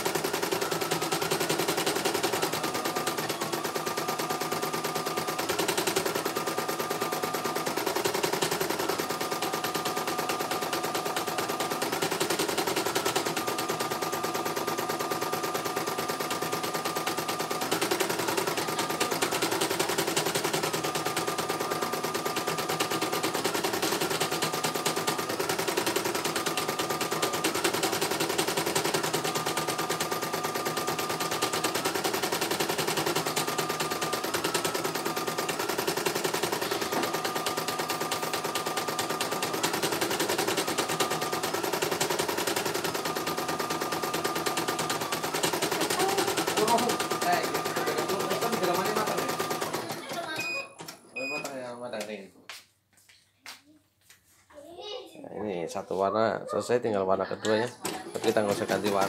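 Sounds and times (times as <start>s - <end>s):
embroidery machine stitching: 0.0s - 51.6s, 57.4s - 59.0s.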